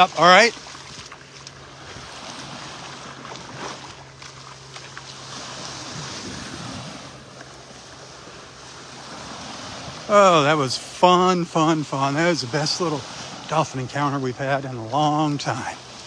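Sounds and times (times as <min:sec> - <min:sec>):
small waves lapping at shore: 0:00.0 - 0:16.0
wind on microphone: 0:05.6 - 0:07.3.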